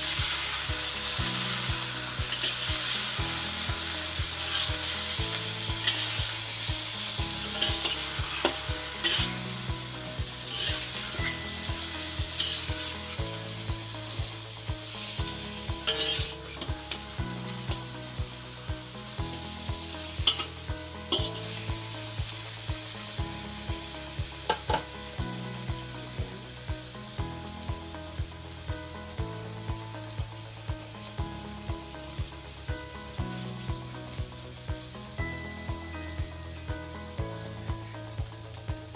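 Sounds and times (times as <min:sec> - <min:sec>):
meat sizzling in hot oil: 0:00.0 - 0:38.9
spatula scraping and knocking pan: 0:00.1 - 0:13.2, 0:15.8 - 0:16.6.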